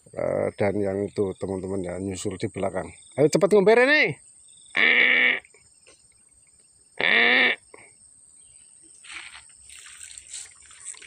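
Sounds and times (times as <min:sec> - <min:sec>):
insects droning: 0:00.0 - 0:11.0
faint scuffing: 0:09.0 - 0:11.0.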